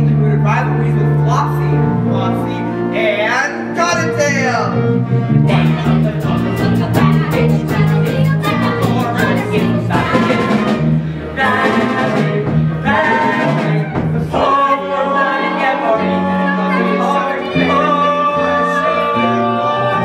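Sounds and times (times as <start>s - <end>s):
bass notes: 0.0s - 20.0s
group singing together: 5.4s - 20.0s
drums keeping the beat: 5.5s - 18.0s.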